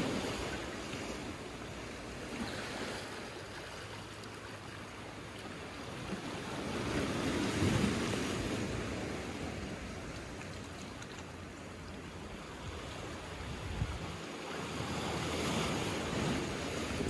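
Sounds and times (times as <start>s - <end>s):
waves washing over rocks and pebbles: 0.0s - 17.0s.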